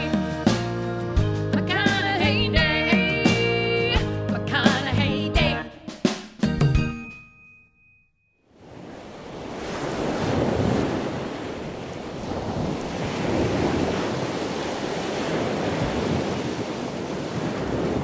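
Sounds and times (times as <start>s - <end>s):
ocean surf washing onto beach: 8.6s - 18.0s
wind buffeting microphone: 8.7s - 18.0s.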